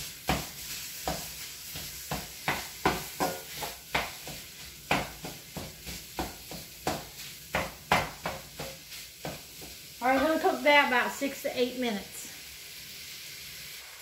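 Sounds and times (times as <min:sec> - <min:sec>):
utensil scraping a pan: 0:00.0 - 0:10.6
meat sizzling: 0:00.0 - 0:14.0.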